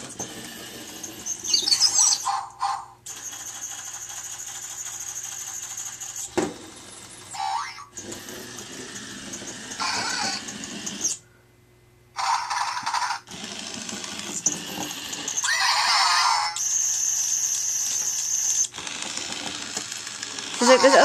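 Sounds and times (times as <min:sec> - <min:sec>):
toy hamster electronic squeaks: 0:00.4 - 0:06.3, 0:07.3 - 0:08.0, 0:09.0 - 0:11.2, 0:12.2 - 0:13.3, 0:14.2 - 0:18.8, 0:20.6 - 0:21.0.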